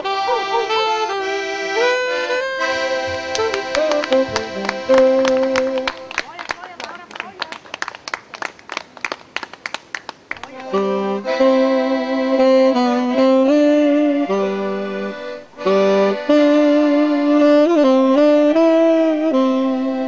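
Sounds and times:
tenor saxophone melody: 0:00.0 - 0:06.2, 0:10.4 - 0:20.0
accordion: 0:00.0 - 0:07.4, 0:10.4 - 0:20.0
rhythmic hand clapping: 0:02.7 - 0:10.9.

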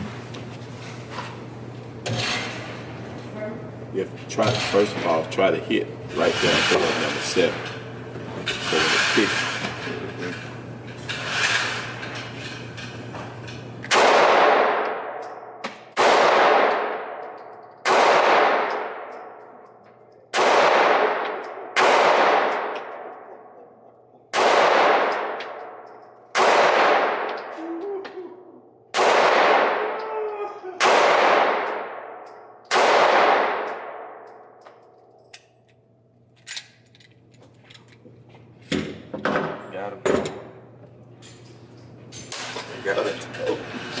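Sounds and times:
handgun shots echoing: 0:13.9 - 0:19.6, 0:20.3 - 0:23.6, 0:24.3 - 0:27.6, 0:28.9 - 0:30.1, 0:30.8 - 0:34.4.

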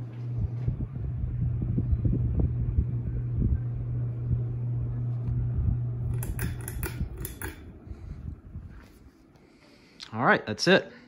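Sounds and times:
fan blades whooshing: 0:00.0 - 0:10.0
ceiling fan motor hum: 0:00.0 - 0:11.0
clicks and rattles: 0:06.1 - 0:07.7.

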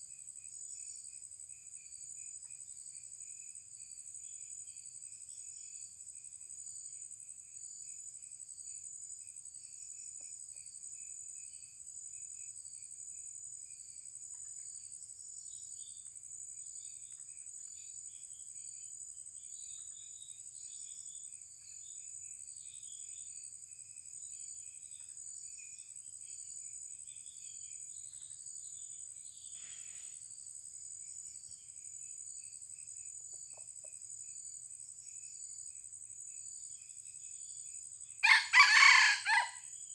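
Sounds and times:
high-pitched insect chorus: 0:00.0 - 0:39.9
pulsing insect trill: 0:14.8 - 0:39.9.

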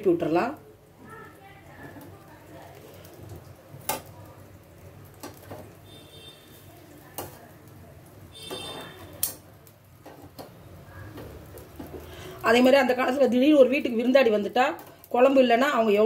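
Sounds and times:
metal tongs clicking on grill: 0:03.8 - 0:04.2, 0:05.0 - 0:05.7, 0:07.0 - 0:07.8, 0:08.5 - 0:10.6.

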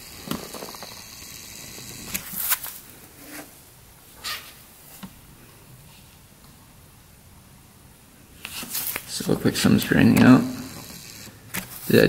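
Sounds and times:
hands rustling: 0:08.4 - 0:09.2.

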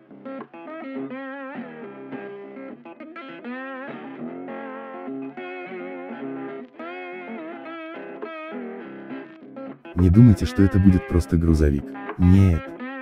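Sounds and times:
guitar melody with bent notes: 0:00.0 - 0:09.9.

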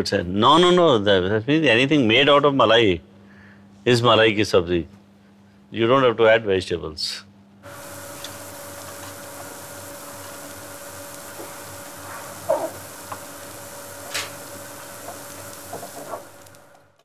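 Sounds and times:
faint steady hum: 0:00.0 - 0:17.0
food sizzling in a pan: 0:07.6 - 0:17.0.

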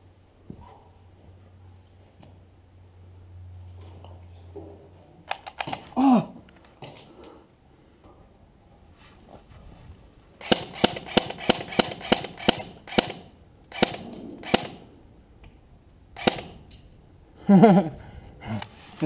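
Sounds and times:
airsoft gun single shots: 0:10.4 - 0:14.8, 0:16.2 - 0:16.6.

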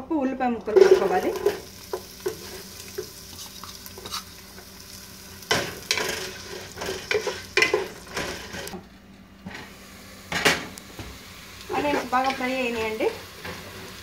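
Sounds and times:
onions sizzling in oil: 0:00.5 - 0:08.8, 0:09.7 - 0:14.0
wooden spatula scraping a pot: 0:05.8 - 0:08.8.

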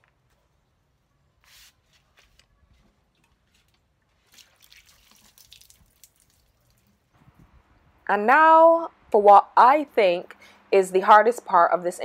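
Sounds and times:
water trickling and dripping: 0:04.1 - 0:07.5.

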